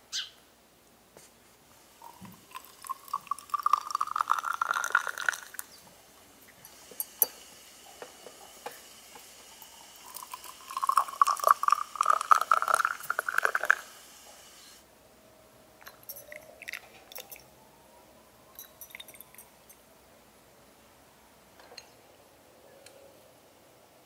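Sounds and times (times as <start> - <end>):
water pouring into glass: 2.0 - 5.8, 9.5 - 13.9, 18.6 - 19.4
glass clicks: 18.6 - 19.5.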